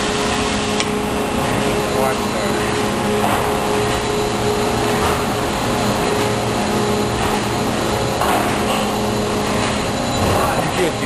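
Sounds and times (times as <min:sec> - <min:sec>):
machinery humming: 0:00.0 - 0:11.0.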